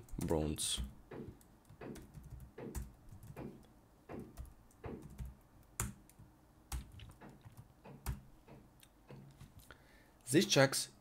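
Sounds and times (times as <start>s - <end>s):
keyboard typing: 0.0s - 9.6s.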